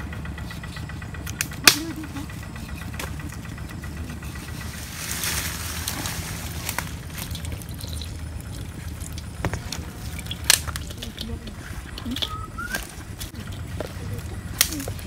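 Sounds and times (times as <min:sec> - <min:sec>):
steady low rumble: 0:00.0 - 0:15.0
juice dribbling into metal wok: 0:06.7 - 0:11.4.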